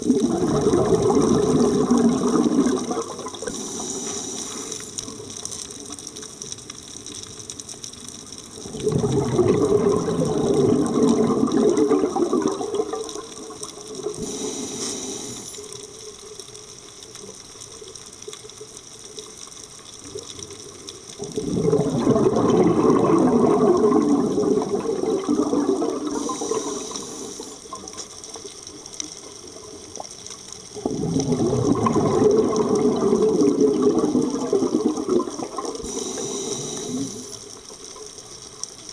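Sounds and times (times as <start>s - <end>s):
exhaled bubbles rushing underwater: 0.0s - 15.9s, 20.0s - 38.7s
regulator inhaling hiss: 3.4s - 5.1s, 14.2s - 15.9s, 26.1s - 27.8s, 35.8s - 37.6s.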